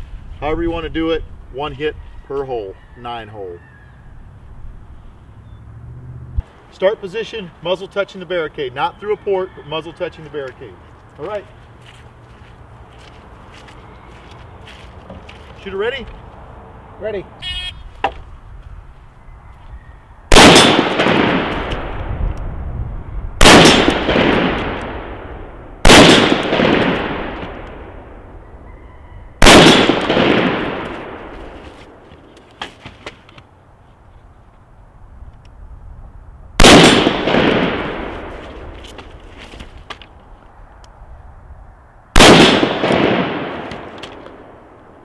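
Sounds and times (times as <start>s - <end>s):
rifle shots with long echo: 20.3s - 22.2s, 23.4s - 28.4s, 29.4s - 31.4s, 36.6s - 38.5s, 42.2s - 45.0s.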